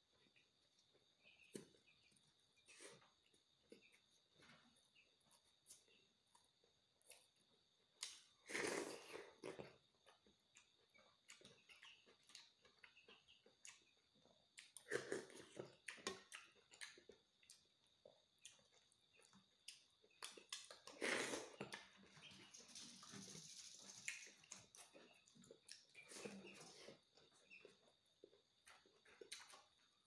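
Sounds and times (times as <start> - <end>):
person chewing wetly: 8.0 - 22.1, 24.0 - 29.9.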